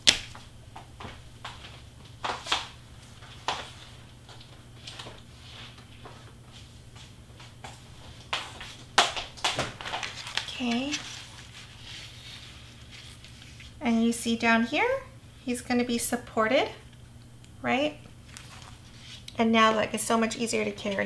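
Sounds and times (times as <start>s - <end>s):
rustling of large card sheets: 7.6s - 13.8s, 18.2s - 19.3s.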